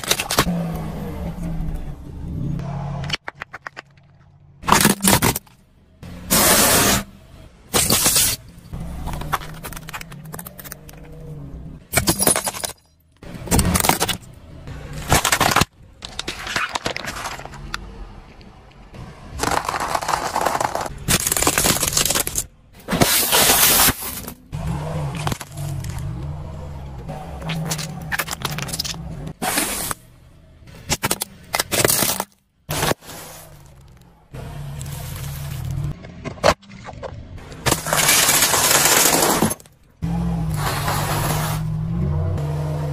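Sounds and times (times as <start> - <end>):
plastic toys cracking and crunching: 0.0 - 0.5, 3.0 - 5.6, 7.8 - 11.2, 13.4 - 14.3, 15.0 - 24.5, 27.4 - 30.0, 30.8 - 34.2, 34.8 - 39.9
car engine running low: 24.4 - 31.4.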